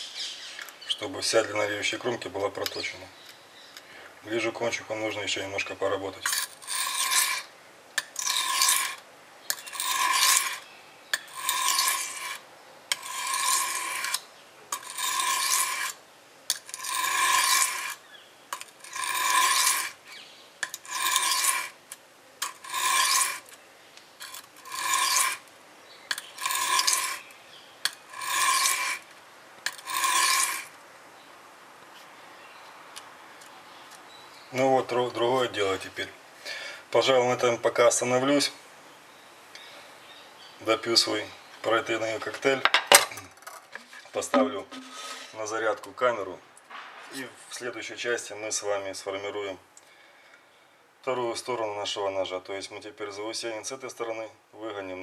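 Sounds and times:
knife scraping on whetstone: 6.2 - 18.0, 18.6 - 20.0, 20.6 - 21.8, 22.4 - 23.6, 24.2 - 25.4, 26.1 - 30.8, 43.8 - 45.4
blade clicking on stone: 20.6 - 23.6.

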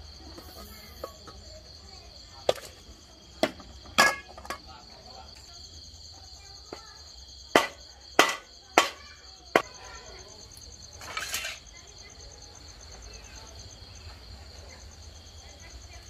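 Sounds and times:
crickets and night insects: 0.0 - 16.0
sharp knocks and clatters: 7.5 - 9.8.

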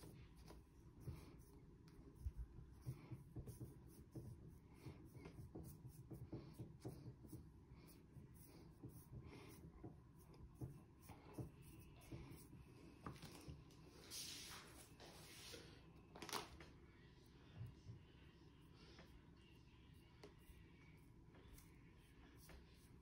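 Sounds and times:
paintbrush strokes: 0.0 - 15.8, 17.1 - 23.0
soft rustle: 13.0 - 15.8.

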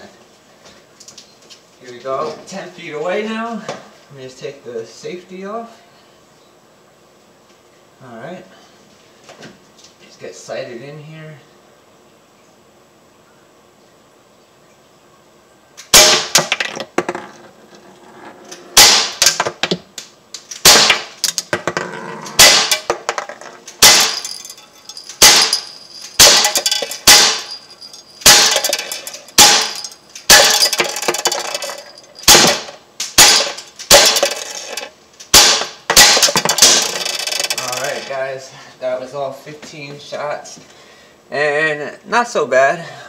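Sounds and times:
air pistol shots: 15.8 - 16.5, 18.8 - 19.4, 20.6 - 21.2, 22.4 - 22.9, 23.7 - 24.4, 25.2 - 27.6, 28.2 - 30.9, 32.2 - 34.3, 35.3 - 37.0
bb striking target trap: 15.9 - 17.4, 18.8 - 19.8, 20.6 - 38.1.

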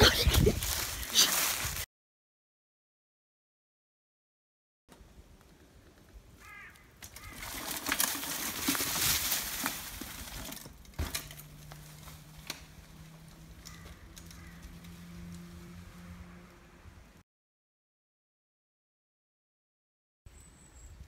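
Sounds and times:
bike tyres rushing over leaves: 0.1 - 1.9, 6.4 - 16.5
bike rattling: 5.9 - 15.9.

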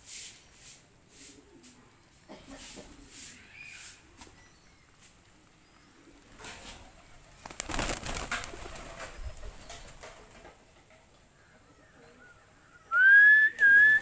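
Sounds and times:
pigeons cooing: 1.1 - 14.0
pigeon wings flapping: 6.2 - 10.6.

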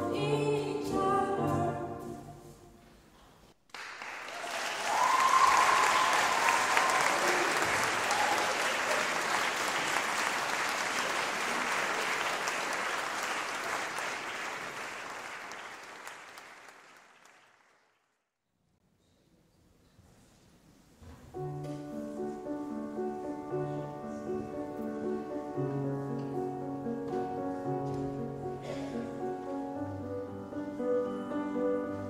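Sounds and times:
audience applauding: 3.7 - 18.0
person cheering: 4.4 - 9.0.

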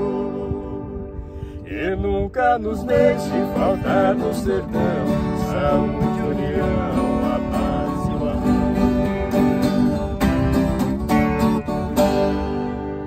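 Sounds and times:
acoustic guitar strumming: 0.0 - 13.0
viola strumming: 2.6 - 13.0.

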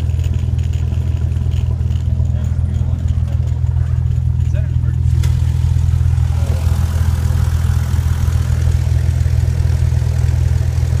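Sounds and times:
aircraft engine droning in cabin: 0.0 - 11.0.

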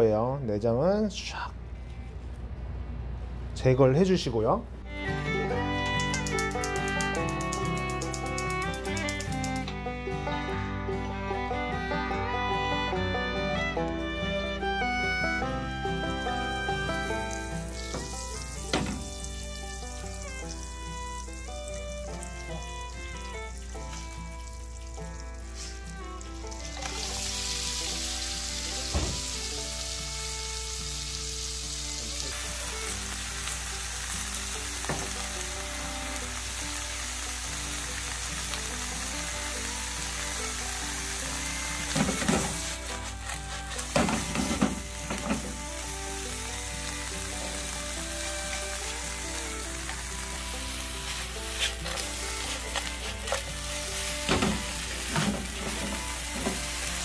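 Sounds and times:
lobster sizzling in butter: 6.0 - 9.7, 16.0 - 57.0
knocks and clatter in a pan: 18.7 - 19.2, 41.9 - 42.6, 43.8 - 45.6, 54.2 - 56.7
chopsticks moving food in a pan: 50.7 - 54.1.

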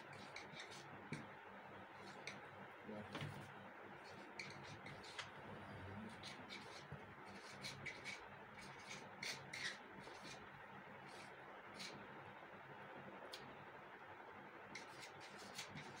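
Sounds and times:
marker pen scratching on board: 0.0 - 1.3, 1.9 - 2.5, 3.2 - 12.0, 14.7 - 16.0.

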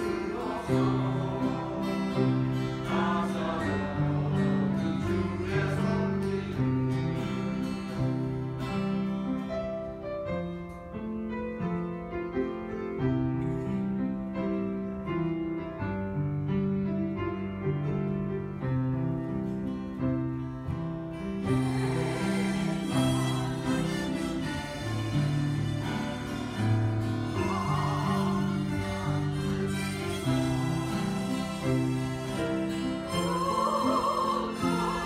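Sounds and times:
voices singing: 0.0 - 7.2, 21.4 - 35.0
strummed acoustic guitar: 0.0 - 10.9, 17.4 - 35.0
harmonica melody: 21.4 - 35.0.

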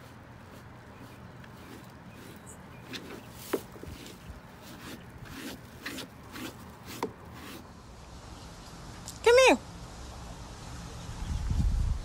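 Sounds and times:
brush scrubbing wet dog coat: 0.0 - 7.7.

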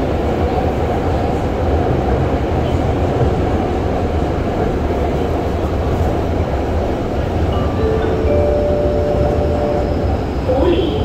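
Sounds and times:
train wheels rumbling on rail: 0.0 - 11.0.

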